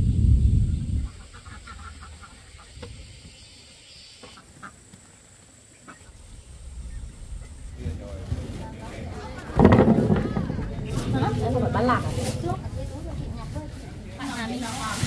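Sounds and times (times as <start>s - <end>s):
ducks quacking: 0.9s - 5.0s, 5.7s - 8.0s.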